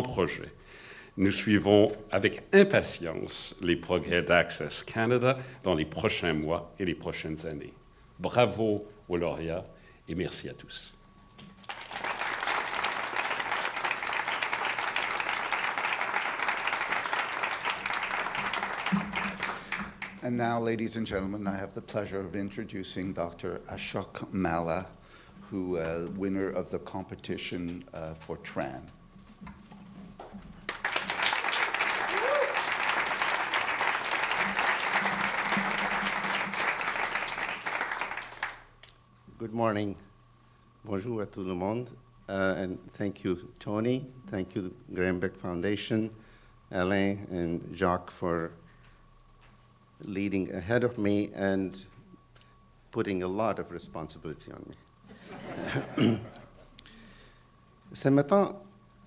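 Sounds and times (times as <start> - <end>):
audience clapping: 11.6 - 20.4, 30.6 - 38.9.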